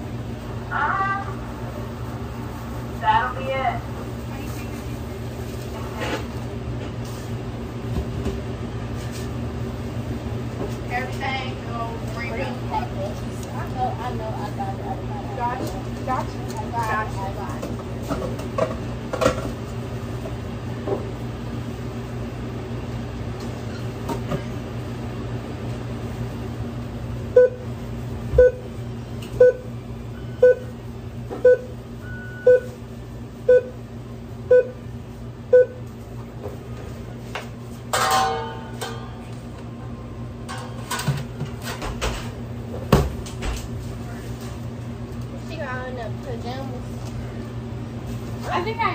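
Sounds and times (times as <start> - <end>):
kitchen equipment hum: 0.0 - 48.9
oven timer beeping: 27.3 - 30.8, 31.4 - 33.8, 34.4 - 34.9, 35.5 - 35.8.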